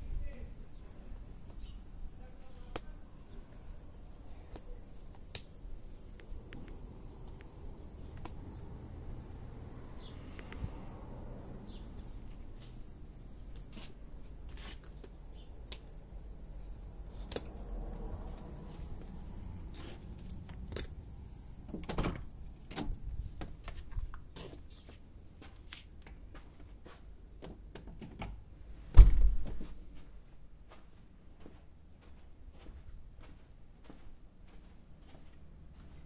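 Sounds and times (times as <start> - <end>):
insects chirring: 0.0 - 30.5
footsteps: 11.8 - 15.2, 23.2 - 27.2, 29.3 - 36.0
door thump: 28.9 - 29.7.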